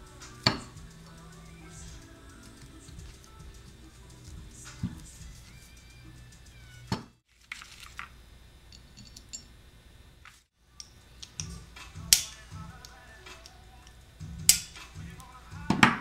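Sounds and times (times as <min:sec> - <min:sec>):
small metal clicks and knocks: 0:08.7 - 0:09.5, 0:10.8 - 0:13.6.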